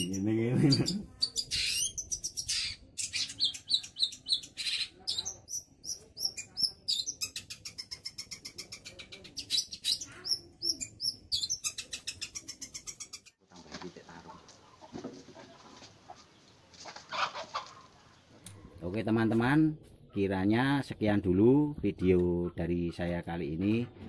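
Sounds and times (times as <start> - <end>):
shrike chattering song: 0.0 - 13.4.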